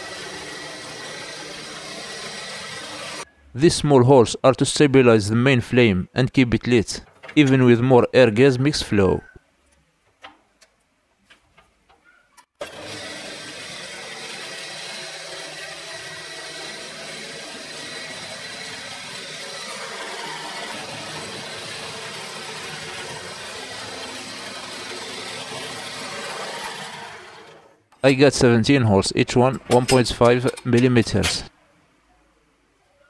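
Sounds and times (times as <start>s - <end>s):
drill press motor running: 0.0s - 3.3s, 12.6s - 27.8s.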